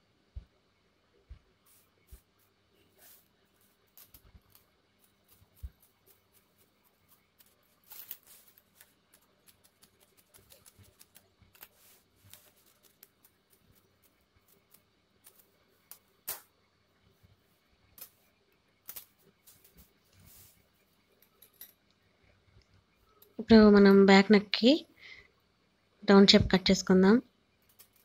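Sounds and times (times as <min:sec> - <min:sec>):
cloth rustling: 0:18.9 - 0:20.8.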